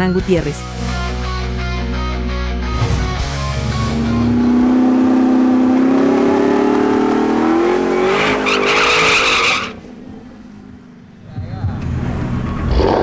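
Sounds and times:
car engine revving: 0:02.7 - 0:13.0
tyres squealing: 0:07.6 - 0:09.8.

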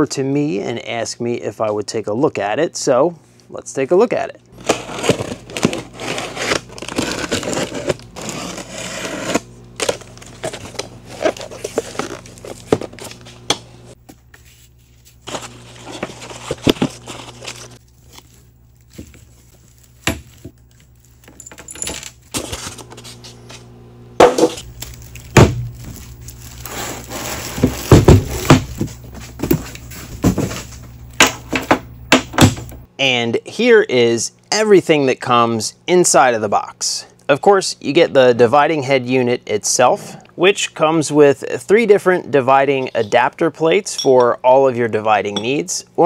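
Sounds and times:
plastic wrap crinkling: 0:04.6 - 0:08.9, 0:09.6 - 0:13.4, 0:14.2 - 0:21.4, 0:24.6 - 0:31.1
cardboard flaps: 0:24.2 - 0:30.9.

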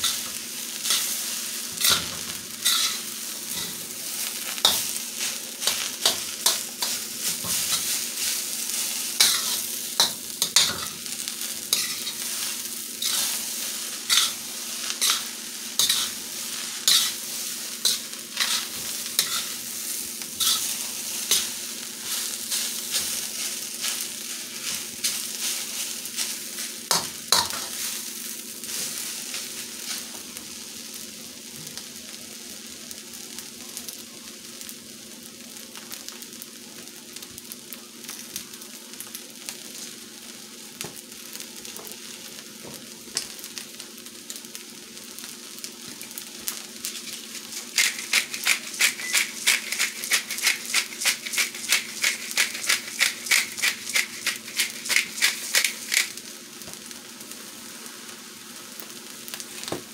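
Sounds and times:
metal spatula scraping a wok: 0:00.0 - 0:08.4, 0:09.0 - 0:11.0, 0:11.7 - 0:16.2, 0:16.8 - 0:19.8, 0:20.4 - 0:24.0, 0:46.9 - 0:56.1
rice sizzling in a wok: 0:00.0 - 0:59.9.

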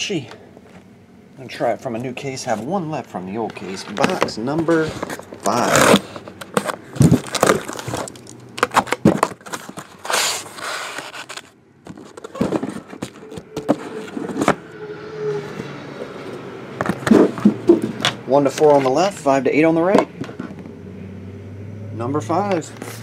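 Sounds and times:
cardboard scraping and rustling: 0:03.4 - 0:19.1
boxes knocking on a table: 0:11.9 - 0:14.6.

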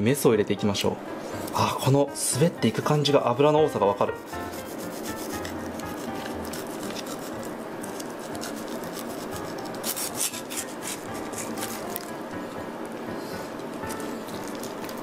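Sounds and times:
knife scraping along fish bones: 0:04.2 - 0:12.0.

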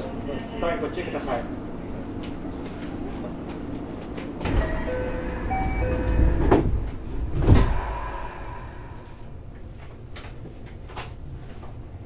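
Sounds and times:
train chime notes: 0:04.5 - 0:06.6.

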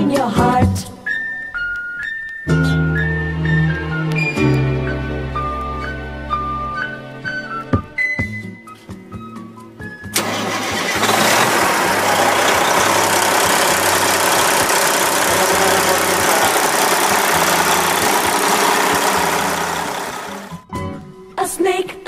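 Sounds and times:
diesel truck engine running: 0:10.2 - 0:20.6.

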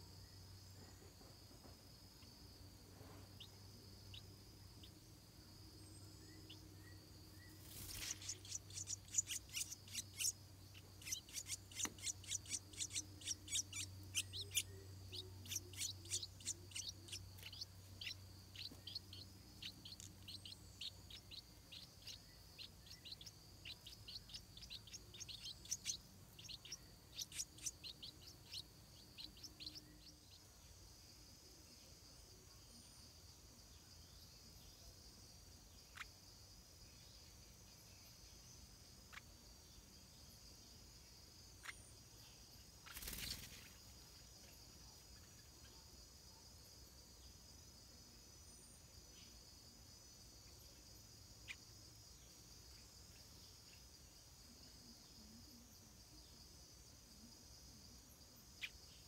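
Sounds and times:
high insect drone: 0:00.0 - 0:59.0
birds chirping: 0:03.2 - 0:31.2, 0:41.6 - 0:45.7.

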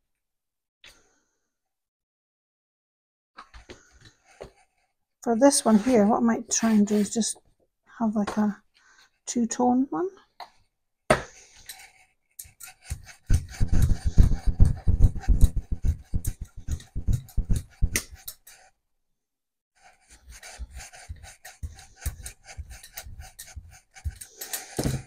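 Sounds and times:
rubber roller rolling paint: 0:12.7 - 0:18.6.

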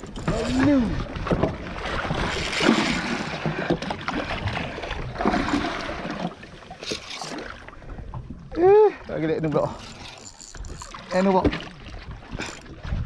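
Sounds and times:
sea water rushing and splashing: 0:00.0 - 0:13.0.

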